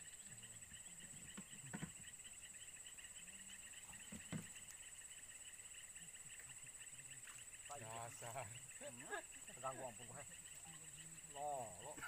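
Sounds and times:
insect trill: 0.0 - 12.0
pulsing insect chirr: 0.0 - 12.0
soft thumps: 4.0 - 4.6.

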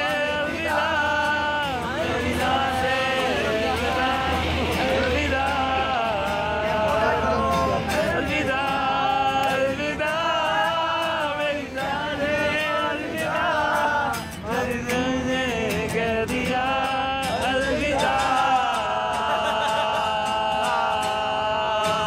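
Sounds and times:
group of men singing: 0.0 - 22.0
strummed acoustic guitar: 0.0 - 22.0.

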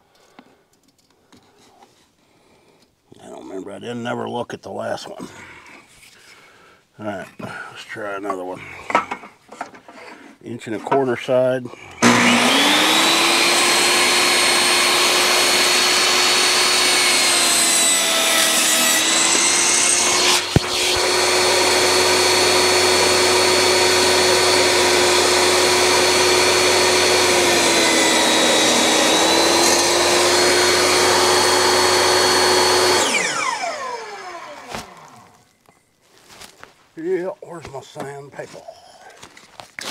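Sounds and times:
table saw whining: 12.0 - 35.5.

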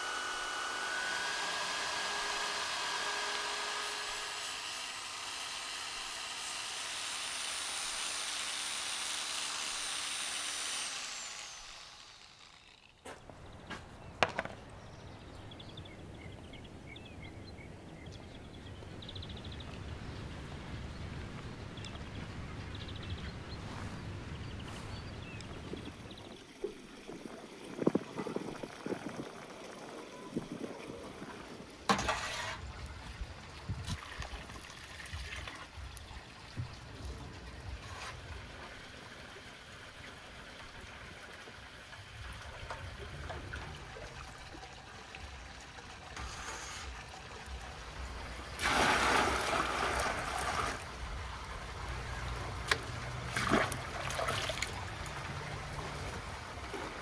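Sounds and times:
clicks and knocks: 14.2 - 14.6
water trickling: 32.9 - 57.0.

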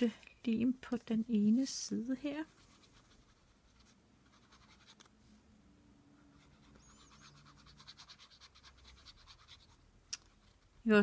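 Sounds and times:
glue rubbed onto paper: 2.4 - 5.1, 6.4 - 10.4.

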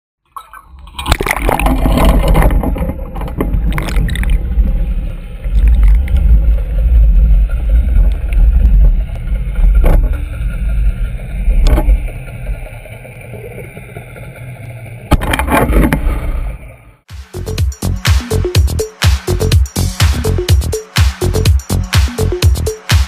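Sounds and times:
water gurgling: 0.2 - 17.0
underwater rumble around hull: 0.6 - 17.1.

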